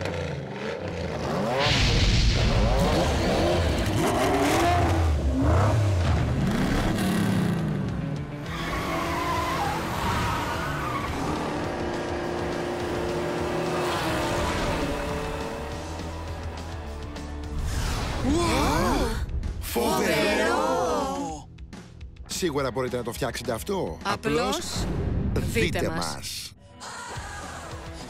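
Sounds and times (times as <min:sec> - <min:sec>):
cartoon race-car engines revving: 0:00.0 - 0:07.7, 0:08.4 - 0:17.2.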